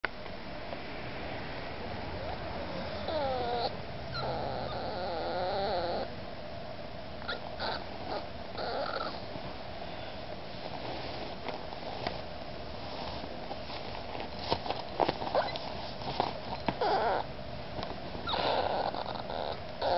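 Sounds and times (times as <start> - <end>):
puppy whining: 2.2 - 6.2, 7.2 - 9.3, 15.2 - 15.8, 16.5 - 17.3, 18.2 - 19.9.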